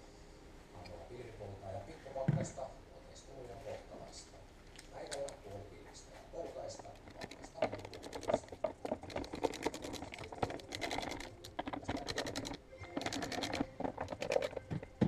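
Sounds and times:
hand ratchet clicking: 0:07.0 - 0:15.0.

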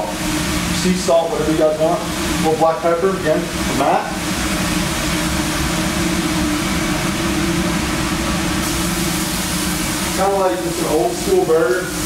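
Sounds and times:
exhaust ventilation hum: 0:00.0 - 0:12.0
burger patties sizzling on griddle: 0:04.2 - 0:12.0.

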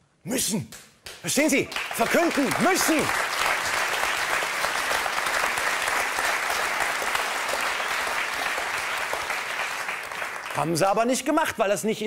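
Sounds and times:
studio audience applauding: 0:01.1 - 0:11.3.

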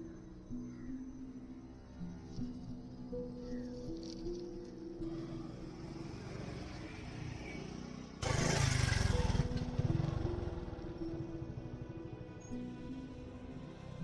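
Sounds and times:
music of long held tones: 0:00.0 - 0:14.0
motorcycle passing by: 0:05.0 - 0:12.0.

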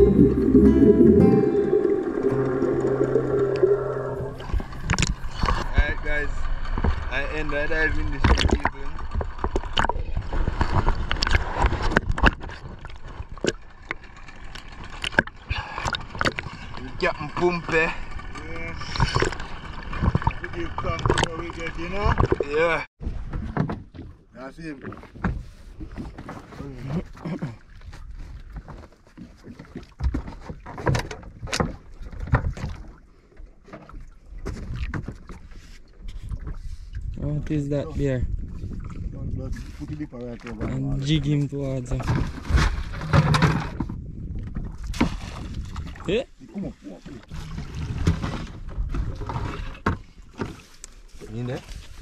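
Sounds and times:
low rumble: 0:00.0 - 0:07.3
water splashes: 0:00.0 - 0:37.2, 0:44.5 - 0:52.0
sea water slapping and gurgling: 0:00.0 - 0:52.0.

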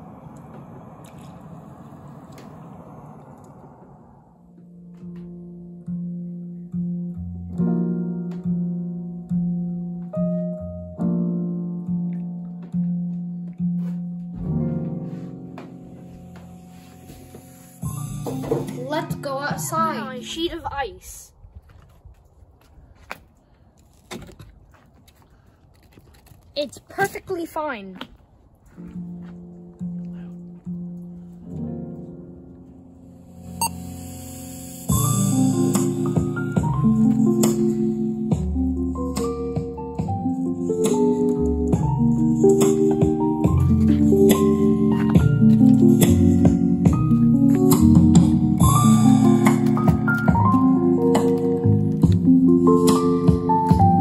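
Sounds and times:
plucked guitar music: 0:35.2 - 0:54.0.

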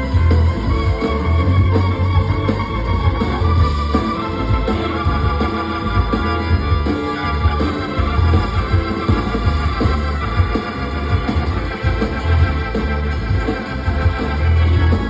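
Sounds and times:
bass line: 0:00.0 - 0:15.0
drums: 0:00.0 - 0:15.0
electric guitar: 0:00.0 - 0:15.0
organ: 0:00.0 - 0:15.0.

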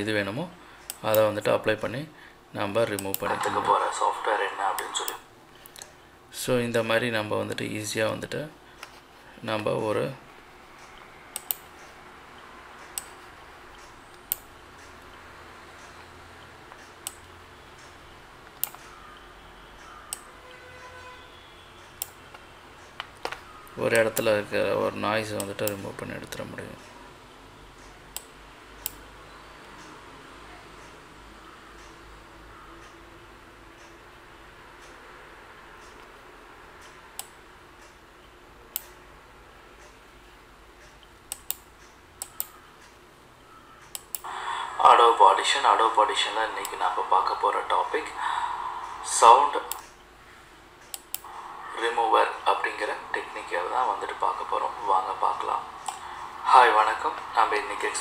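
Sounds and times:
low room and microphone hiss: 0:00.0 - 0:20.5, 0:21.2 - 0:58.0
sharp computer control clicks: 0:02.9 - 0:03.6, 0:10.7 - 0:12.0, 0:12.8 - 0:15.2, 0:16.7 - 0:21.0, 0:21.8 - 0:24.4, 0:27.8 - 0:30.0, 0:36.8 - 0:38.0, 0:38.7 - 0:39.0, 0:40.8 - 0:44.3, 0:49.6 - 0:50.0, 0:50.8 - 0:51.4, 0:52.6 - 0:58.0.

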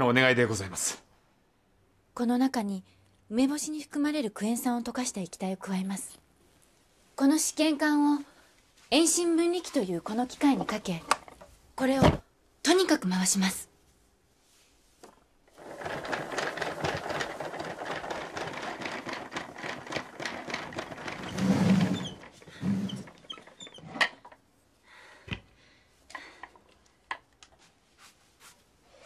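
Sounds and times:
hand-cranked centrifuge rattling: 0:15.5 - 0:24.4.

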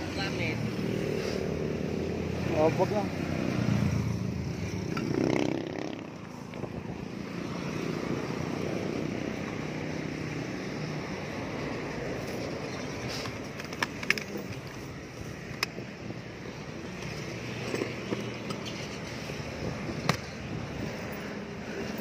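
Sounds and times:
road traffic rushing by: 0:00.0 - 0:22.0.

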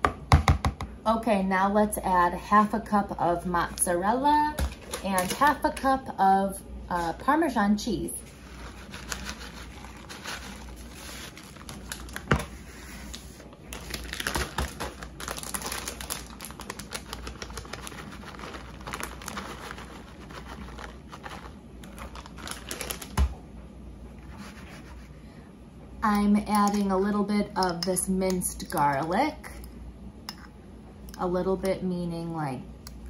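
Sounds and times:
plastic bags crinkling: 0:08.3 - 0:23.4.

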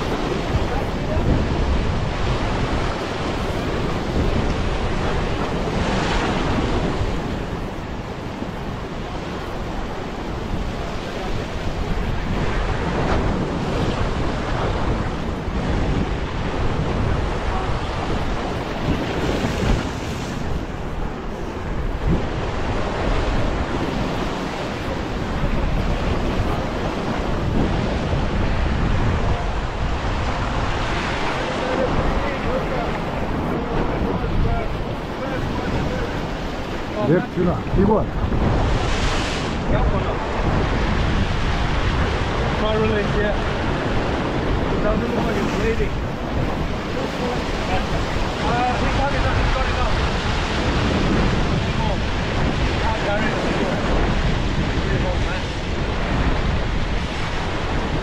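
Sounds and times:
ocean surf breaking over rocks: 0:00.0 - 0:58.0.

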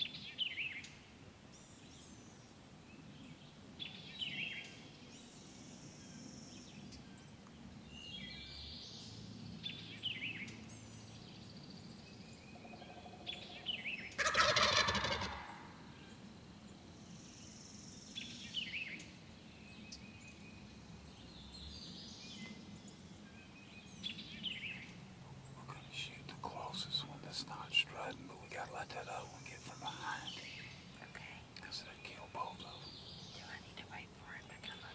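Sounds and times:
songbirds singing: 0:00.0 - 0:34.9
turkey gobbling: 0:14.2 - 0:15.7.

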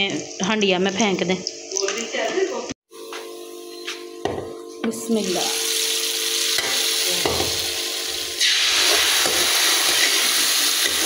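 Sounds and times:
onions sizzling in hot oil: 0:05.1 - 0:11.0.

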